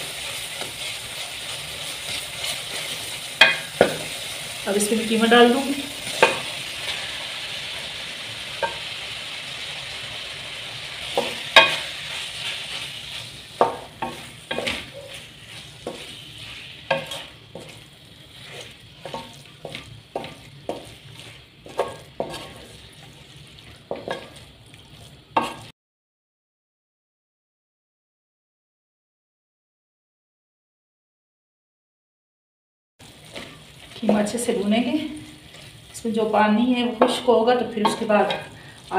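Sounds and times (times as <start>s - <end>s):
wooden spatula scraping a pan: 0.0s - 8.9s, 10.9s - 25.7s, 33.0s - 38.9s
minced meat sizzling in oil: 0.0s - 25.7s, 33.0s - 38.9s.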